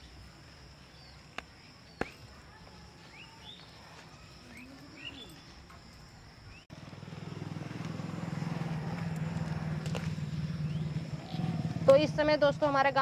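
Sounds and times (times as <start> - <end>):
vehicle engine humming: 6.7 - 13.0
rising bird chirps: 10.2 - 11.8.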